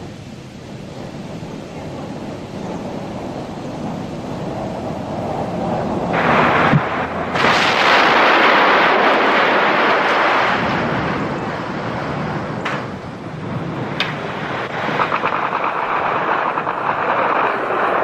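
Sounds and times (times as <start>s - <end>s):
sharp crack: 6.1s - 11.6s, 12.5s - 13.0s, 13.9s - 18.0s
crash of falling masonry and water: 6.1s - 11.9s, 14.0s - 18.0s.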